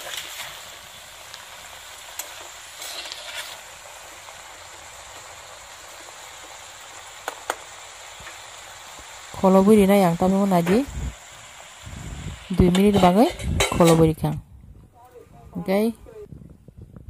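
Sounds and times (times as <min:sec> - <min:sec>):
vegetables sizzling in a frying pan: 0:00.0 - 0:14.4
spatula scraping a pan: 0:02.2 - 0:03.7.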